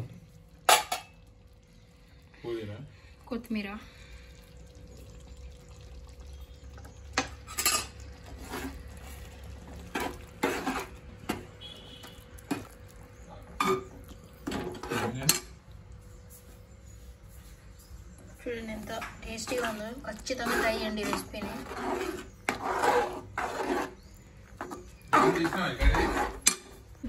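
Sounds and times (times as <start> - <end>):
spoon scraping metal pot: 7.4 - 12.8, 13.6 - 15.6, 19.0 - 26.8.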